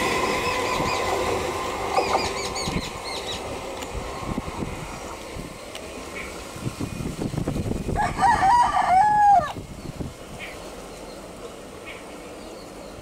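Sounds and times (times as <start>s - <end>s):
electric train rumbling: 0.0s - 13.0s
rooster crowing: 8.0s - 9.6s.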